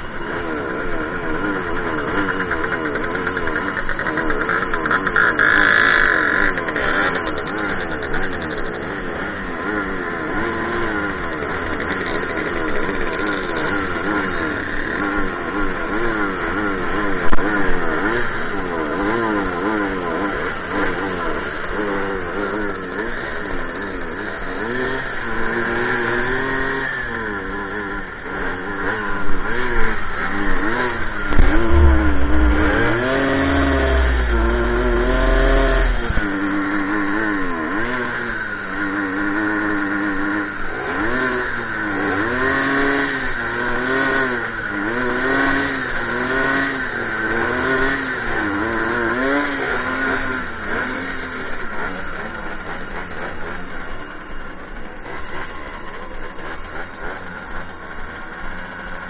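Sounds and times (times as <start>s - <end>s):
moped engine revving: 0.0s - 59.0s
heavy low rumble: 30.4s - 36.9s.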